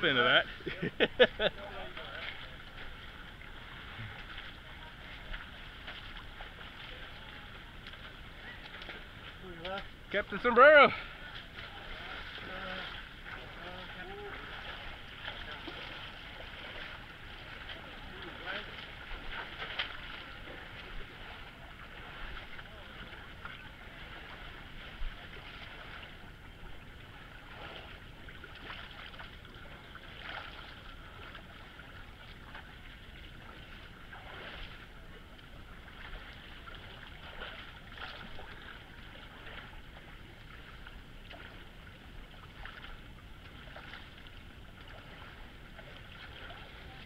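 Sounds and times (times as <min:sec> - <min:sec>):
creek water rushing: 0:00.0 - 0:47.0
people splashing through water: 0:00.0 - 0:47.0.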